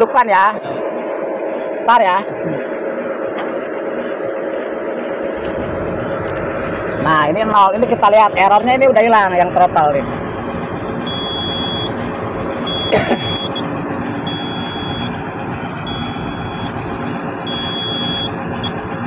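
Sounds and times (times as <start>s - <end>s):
excavator diesel engine idling: 0.0s - 19.0s
high warning beep: 11.0s - 12.0s, 12.7s - 13.6s, 14.3s - 15.1s, 15.9s - 16.8s, 17.5s - 18.8s.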